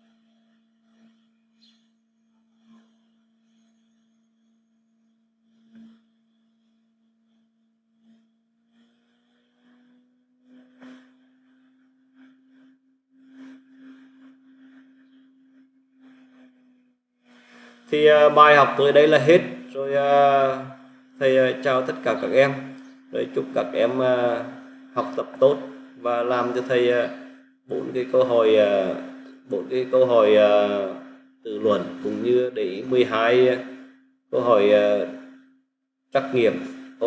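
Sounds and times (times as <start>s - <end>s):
faint electrical hum: 17.4s - 35.5s.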